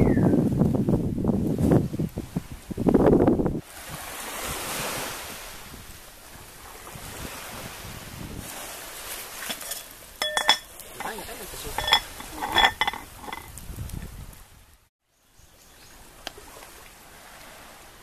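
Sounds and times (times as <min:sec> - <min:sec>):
wind buffeting microphone: 0:00.0 - 0:14.8
surf washing on beach: 0:00.6 - 0:13.6, 0:16.0 - 0:18.0
metal pot clinking: 0:09.4 - 0:13.5.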